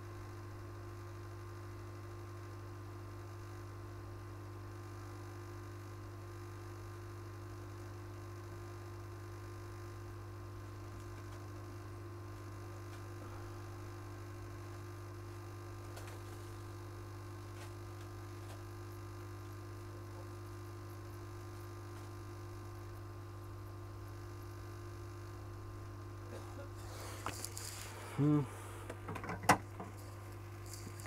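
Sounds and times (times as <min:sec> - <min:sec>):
electrical mains hum: 0:00.0 - 0:31.0.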